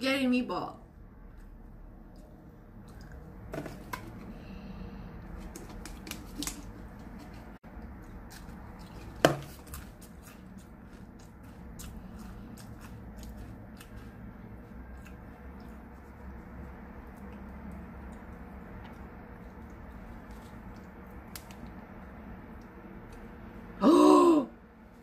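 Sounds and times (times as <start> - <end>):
crisp being chewed: 5.3 - 21.8.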